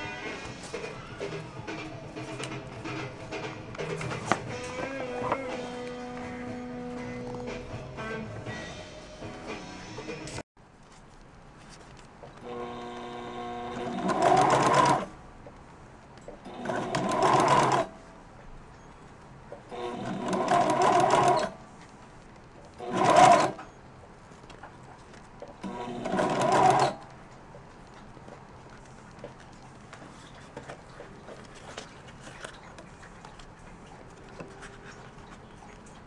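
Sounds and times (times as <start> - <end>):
sewing machine stitching: 12.5 - 15.1, 16.5 - 18.0, 19.7 - 21.6, 22.8 - 23.7, 25.6 - 27.0.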